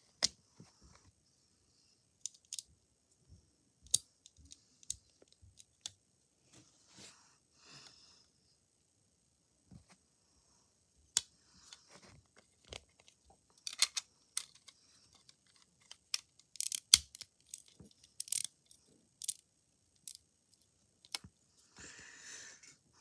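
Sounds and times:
plastic bricks clicking: 12.6s - 18.5s, 19.2s - 19.4s.

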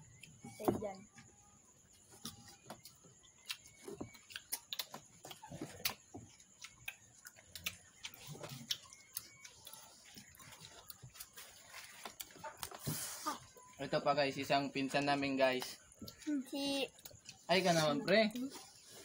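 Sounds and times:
people chewing crunchily: 2.0s - 13.8s, 15.6s - 19.0s.

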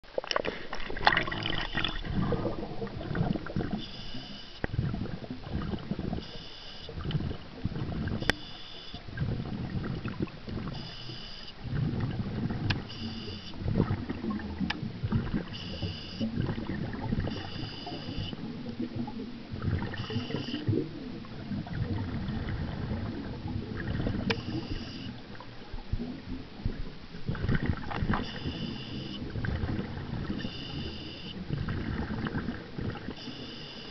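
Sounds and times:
exhaled bubbles rumbling: 0.0s - 11.0s, 11.6s - 33.3s
regulator hissing: 12.9s - 13.6s.

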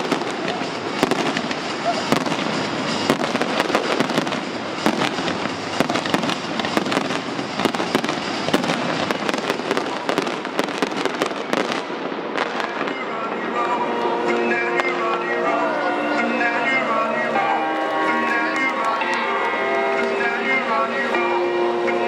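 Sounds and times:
fireworks bangs and pops: 0.0s - 13.8s.

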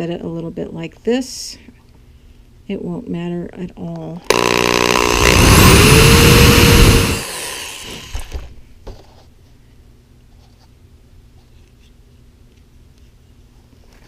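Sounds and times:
power drill into wood: 4.3s - 8.5s.

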